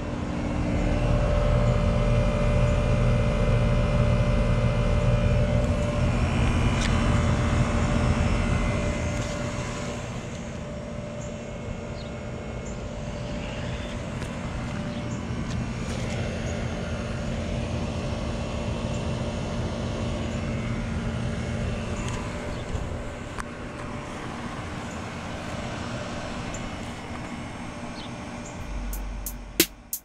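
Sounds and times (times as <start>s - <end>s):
air conditioner unit humming: 0.0s - 30.0s
steady tones: 28.5s - 30.0s.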